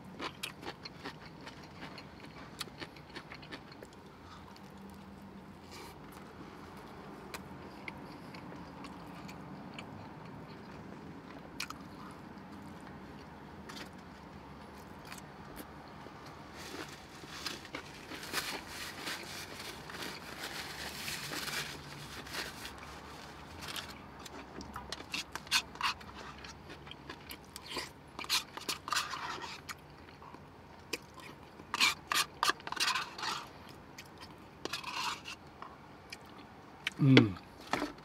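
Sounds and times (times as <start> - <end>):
mouth smacking and chewing: 0.2 - 5.1, 7.3 - 13.9
paper wrapper crumpling: 17.2 - 23.8
plastic spoon scraping in a cup: 28.2 - 29.7, 31.7 - 33.5, 34.6 - 35.4.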